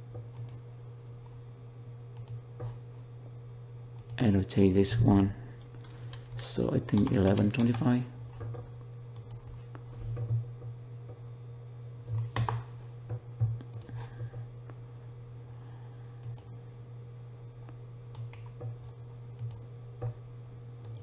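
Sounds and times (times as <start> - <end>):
low electrical hum: 0.0 - 21.0
computer mouse clicks: 0.3 - 0.6, 2.2 - 2.4, 9.2 - 9.8, 16.2 - 16.5, 18.1 - 18.6, 19.4 - 19.6.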